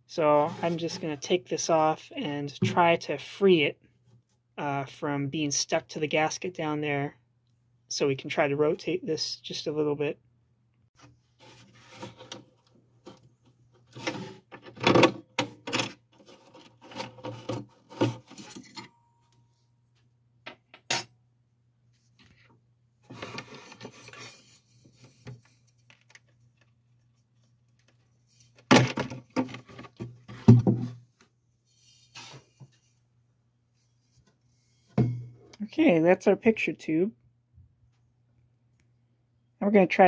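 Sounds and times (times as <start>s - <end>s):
picture tube scraping wooden cabinet: 11.4s - 18.8s, 23.1s - 25.4s.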